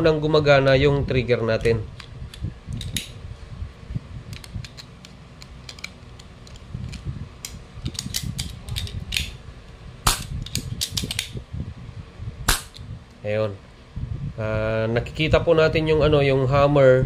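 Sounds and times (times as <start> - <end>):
sharp metallic snap: 10.0 - 11.4, 12.5 - 12.9.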